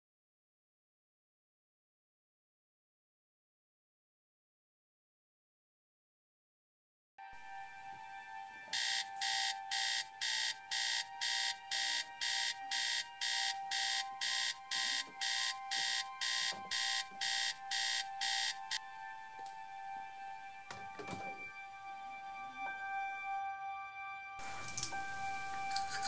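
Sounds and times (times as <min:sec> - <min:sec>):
alarm clock beeping: 0:08.6 - 0:20.4.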